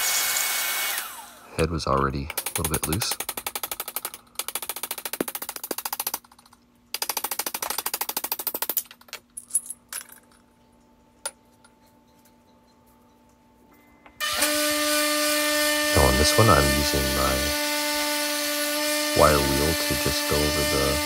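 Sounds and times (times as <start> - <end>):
faint steady hum: 8.8 - 14.3.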